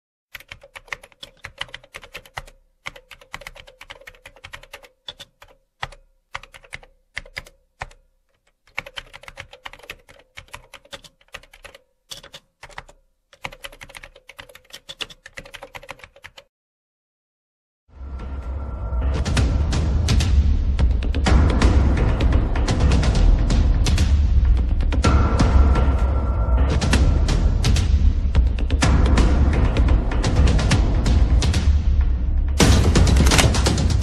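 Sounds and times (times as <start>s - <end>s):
computer keyboard typing: 0.3s - 16.5s, 33.0s - 34.0s.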